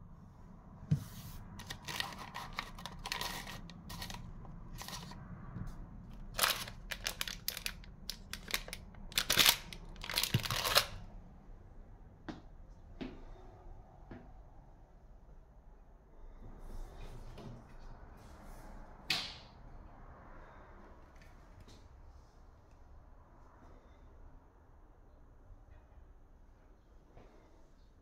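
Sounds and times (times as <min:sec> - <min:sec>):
paper sachets rustling: 0:01.6 - 0:05.2, 0:06.2 - 0:11.0.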